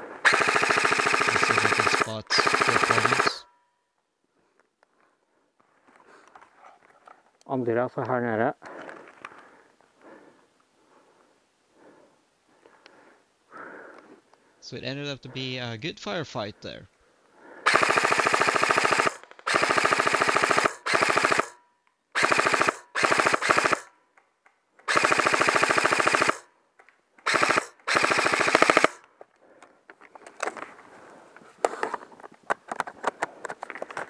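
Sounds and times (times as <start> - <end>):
airsoft rifle full-auto bursts: 0.2 - 3.5, 17.6 - 21.6, 22.2 - 23.9, 24.8 - 26.5, 27.2 - 29.0
faint clicks and rustling: 4.0 - 10.0, 29.0 - 34.0.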